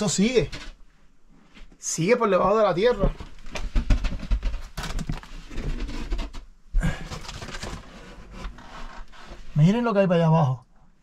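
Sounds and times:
person breathing: 6.8 - 7.5.

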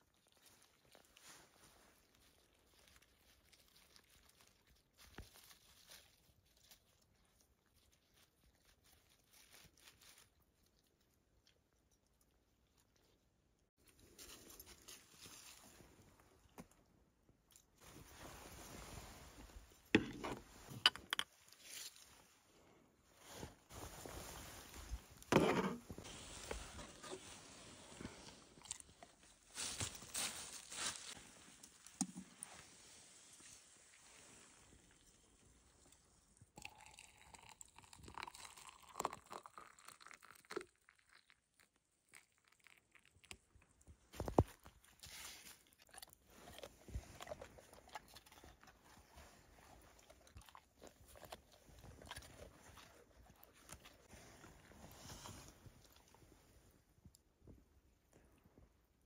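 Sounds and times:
dry leaves crackling: 2.0 - 7.0, 7.7 - 10.4, 29.5 - 31.7
dog crunching a cracker: 45.6 - 54.1.

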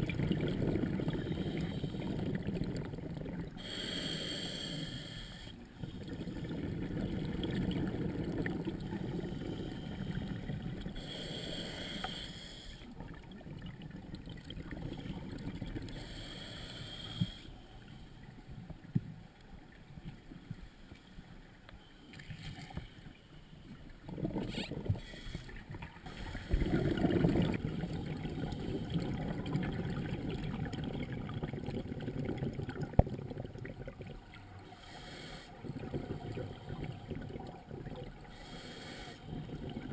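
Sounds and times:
exhaled bubbles rumbling: 0.0 - 3.8, 5.8 - 11.0, 12.8 - 16.2, 23.8 - 34.7, 35.6 - 38.3, 39.2 - 39.9
hissing regulator inhales: 1.2 - 2.3, 3.6 - 6.0, 11.0 - 12.9, 15.9 - 17.6, 24.5 - 26.7, 34.6 - 35.6, 38.3 - 39.3.

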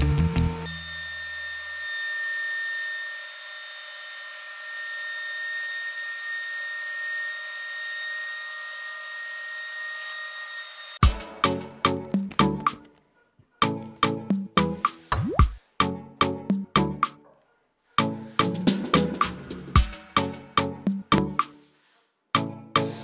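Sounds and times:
music: 0.0 - 1.0, 11.0 - 23.0
thickness planer whining: 0.0 - 11.0.

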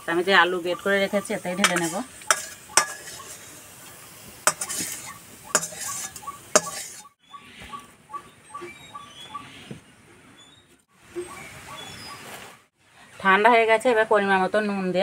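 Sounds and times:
spatula scraping a wok: 0.9 - 7.2.

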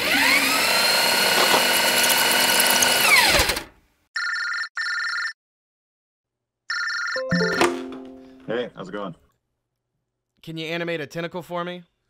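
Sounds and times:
electronic ringtone: 4.2 - 5.4, 6.7 - 8.5.

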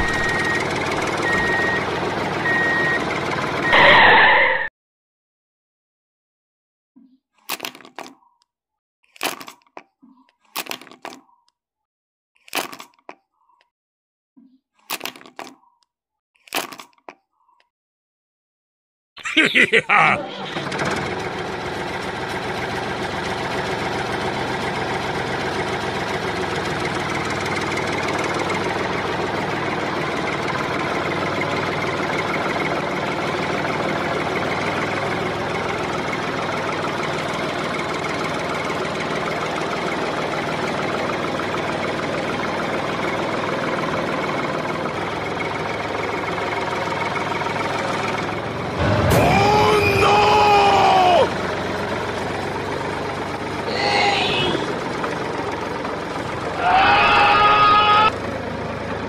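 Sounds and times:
tractor engine running: 0.0 - 4.6, 20.2 - 59.0
voice-like rising and falling sound: 3.7 - 4.7, 48.8 - 51.3, 53.7 - 54.8.

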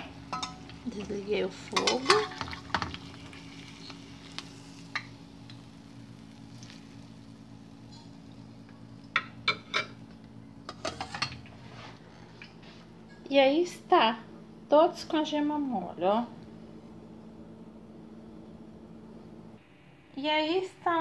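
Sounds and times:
oil sizzling in frying pan: 0.0 - 10.2.

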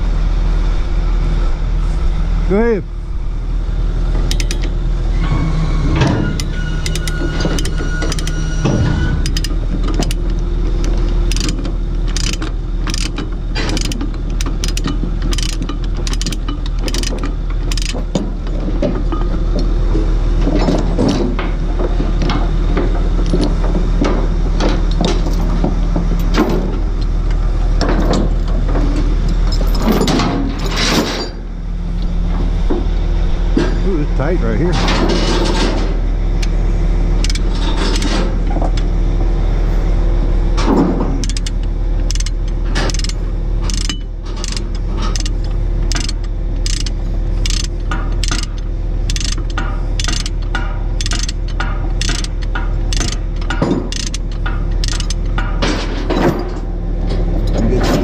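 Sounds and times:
diesel engine idling: 0.0 - 29.8, 31.4 - 55.6
ratchet chain binder clicking: 4.3 - 4.8, 6.4 - 8.6, 9.2 - 18.2, 37.2 - 38.2, 41.2 - 55.4
chain clanking and rattling: 6.0 - 19.5, 20.4 - 31.5, 37.2 - 38.8, 40.6 - 58.0.

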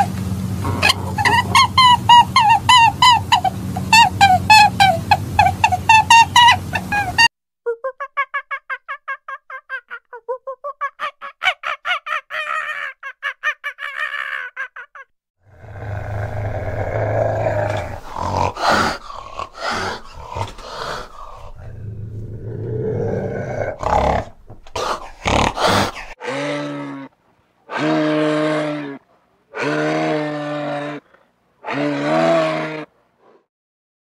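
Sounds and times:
moose low grunting calls: 0.0 - 3.9, 15.6 - 27.1
wild cat growling and hissing: 0.6 - 1.8, 15.5 - 27.1, 27.7 - 33.5.

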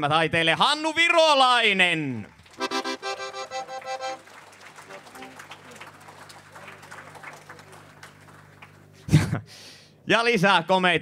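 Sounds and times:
light scattered applause: 2.2 - 9.2
electronic keyboard chord: 2.6 - 4.2.

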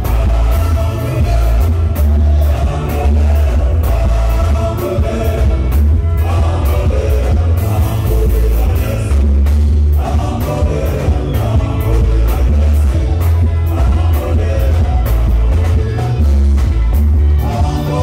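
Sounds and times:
person singing: 17.3 - 18.0.

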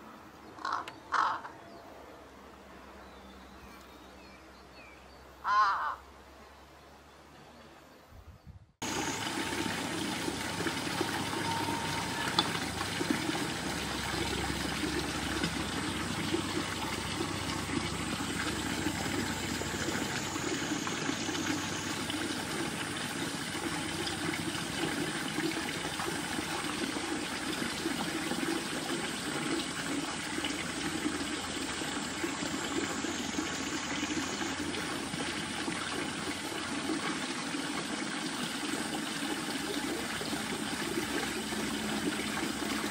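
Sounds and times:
flowing water rushing: 8.8 - 42.9.

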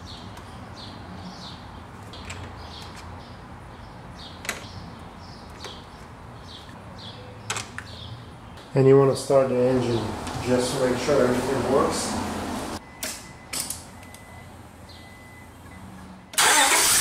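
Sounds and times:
bird chirping: 0.0 - 8.8, 14.9 - 15.4.

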